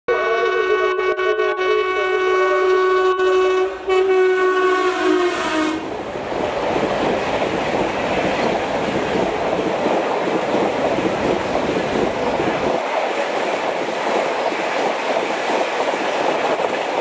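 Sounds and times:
locomotive horn blowing: 0.1 - 6.0
train wheels rushing over rails: 3.8 - 17.0.

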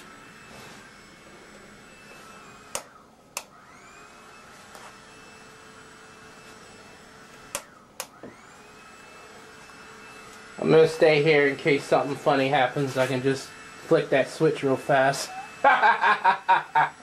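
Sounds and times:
hair dryer running with whine: 0.0 - 17.0
sharp clicks: 2.7 - 3.6, 7.4 - 8.2.

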